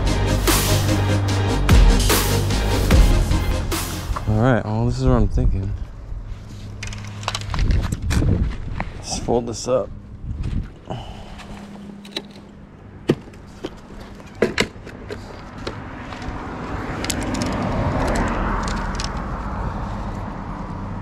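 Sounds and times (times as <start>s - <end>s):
clicks and knocks of gear: 6.7s - 9.0s, 11.4s - 19.3s
car passing: 15.3s - 21.0s.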